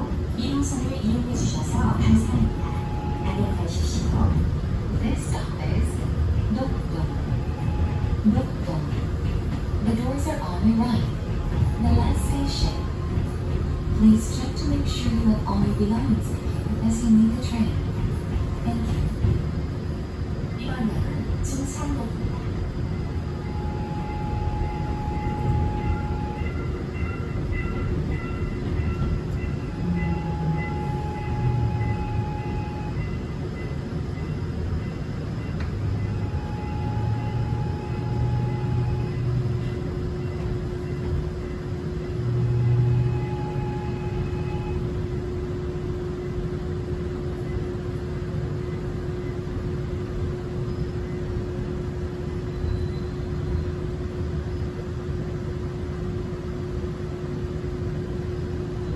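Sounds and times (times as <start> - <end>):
subway train wheels rumbling: 0.0 - 58.9
clear tone: 23.0 - 33.8.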